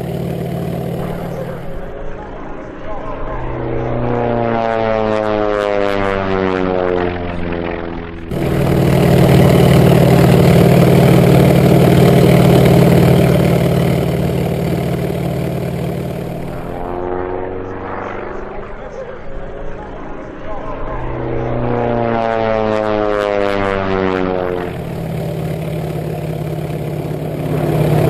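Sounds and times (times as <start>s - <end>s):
model plane motor and propeller: 0.0s - 3.0s, 6.3s - 20.4s, 23.0s - 28.0s.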